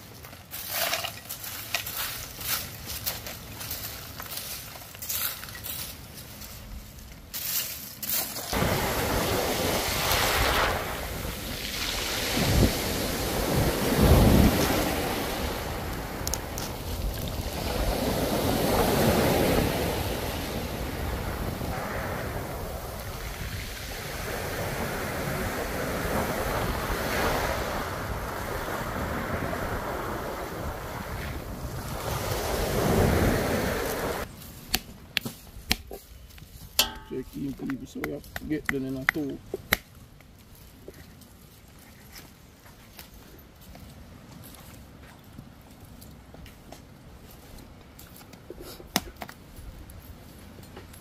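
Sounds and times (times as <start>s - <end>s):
wind buffeting microphone: 8.6s - 34.3s.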